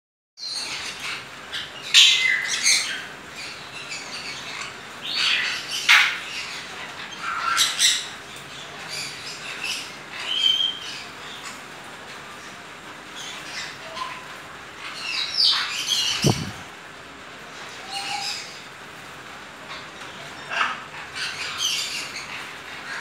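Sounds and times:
cockatoo harsh calls: 0:13.4 - 0:16.9, 0:19.6 - 0:23.0.

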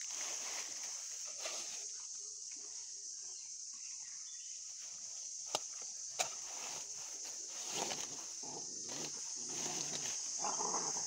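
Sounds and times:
insects droning: 0:00.0 - 0:11.0
sharp snaps of frond: 0:05.5 - 0:06.4.

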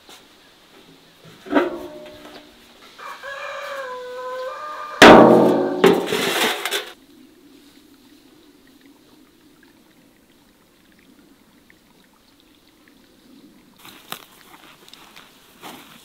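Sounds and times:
rooster crowing: 0:03.0 - 0:05.8
loud knock and clatter: 0:05.0 - 0:06.8.

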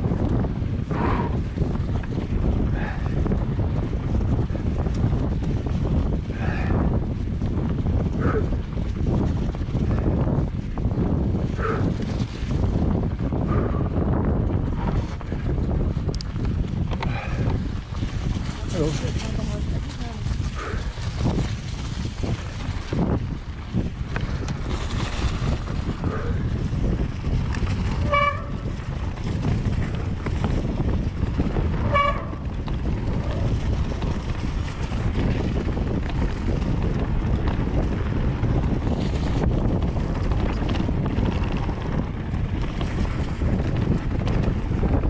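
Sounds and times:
bike tyres rumbling over dirt: 0:00.0 - 0:45.0
wind on microphone: 0:00.0 - 0:45.0.

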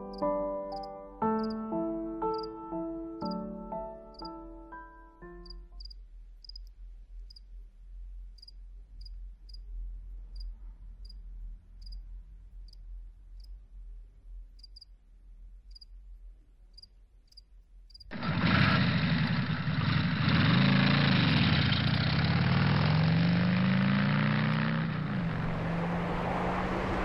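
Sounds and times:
cricket chirping: 0:00.0 - 0:01.6, 0:02.3 - 0:02.5, 0:05.4 - 0:07.5, 0:08.4 - 0:09.7, 0:10.3 - 0:11.2, 0:11.8 - 0:13.6, 0:14.6 - 0:15.0, 0:15.6 - 0:16.0, 0:16.7 - 0:18.1
soft piano music: 0:00.0 - 0:06.0
faint low rumble: 0:05.6 - 0:18.2.

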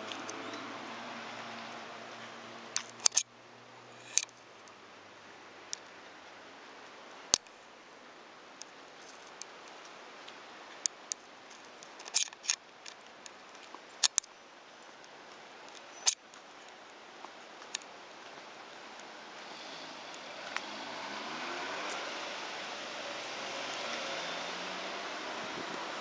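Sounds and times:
faint steady hiss: 0:00.0 - 0:26.0
sharp clicks and ticks: 0:02.8 - 0:03.3, 0:04.0 - 0:04.8, 0:10.8 - 0:14.3.

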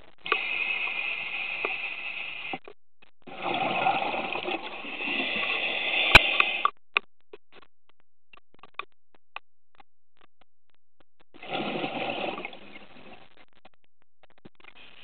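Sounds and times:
scuba regulator breathing underwater: 0:00.3 - 0:02.6, 0:03.3 - 0:06.7.

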